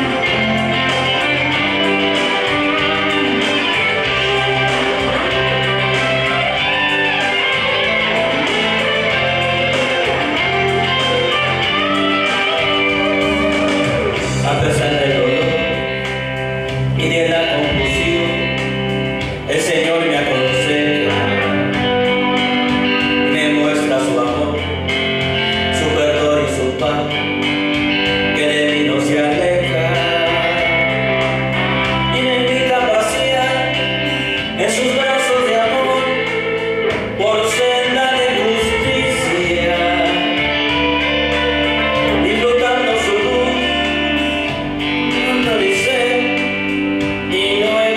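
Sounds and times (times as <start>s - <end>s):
bass line: 0.0s - 47.9s
guitar: 0.0s - 47.9s
man singing into microphone: 9.1s - 16.1s, 16.8s - 47.9s.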